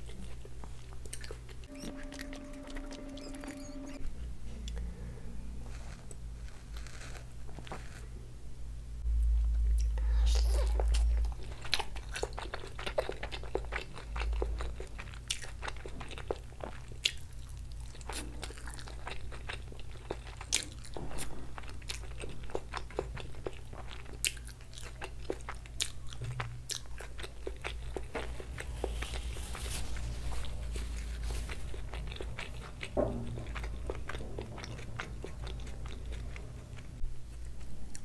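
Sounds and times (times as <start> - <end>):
chewing crispy fried food: 0.0 - 2.4, 5.6 - 8.1, 9.8 - 38.0
tissue rustling: 28.8 - 31.6.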